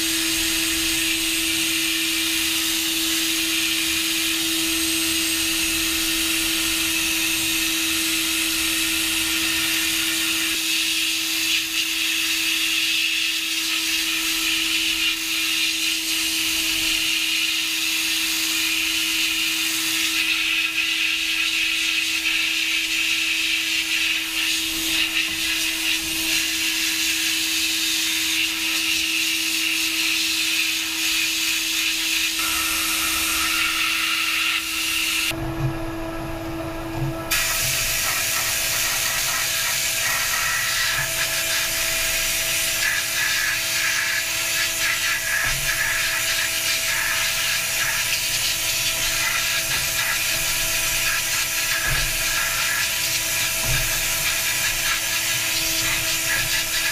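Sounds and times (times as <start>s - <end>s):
machine with higher hum: 0.0s - 12.8s, 32.2s - 56.9s
power tool humming and hissing: 0.0s - 56.9s.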